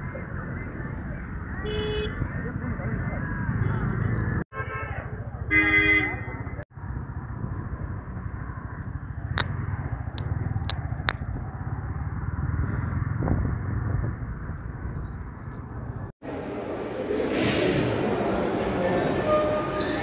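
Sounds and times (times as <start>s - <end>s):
low vehicle rumble: 6.3s - 19.8s.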